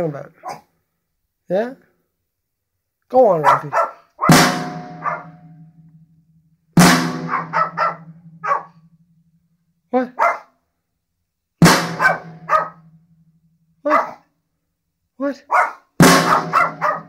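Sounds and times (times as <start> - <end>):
dog barking: 0.4 - 0.7, 3.4 - 5.4, 7.2 - 8.8, 10.1 - 10.6, 11.9 - 12.9, 13.8 - 14.3, 15.4 - 17.0
drum hit ringing: 4.3 - 5.9, 6.8 - 9.0, 11.6 - 13.2, 16.0 - 17.0.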